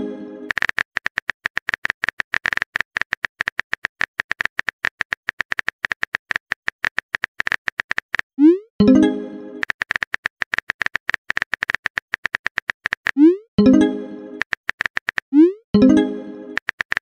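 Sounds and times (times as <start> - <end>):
phone keyboard typing clicks: 8.9 - 13.8, 14.4 - 15.4, 16.5 - 17.0.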